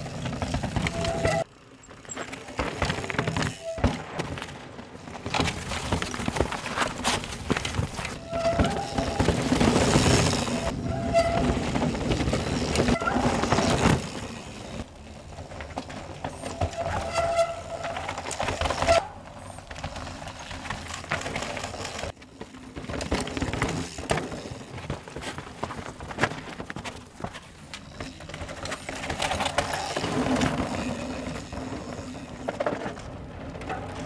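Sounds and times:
brake squeals: 0:00.0 - 0:04.3, 0:07.8 - 0:15.3, 0:15.9 - 0:20.7
bike tyres crunching over rock: 0:00.0 - 0:34.0.

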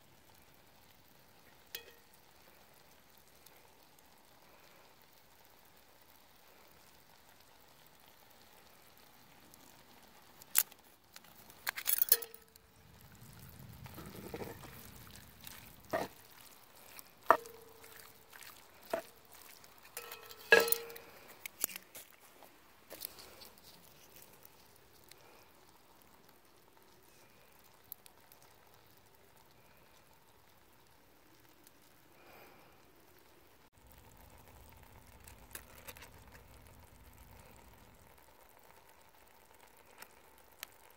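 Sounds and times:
utensils knocking against iron pot: 0:17.3 - 0:17.7, 0:20.0 - 0:21.1.

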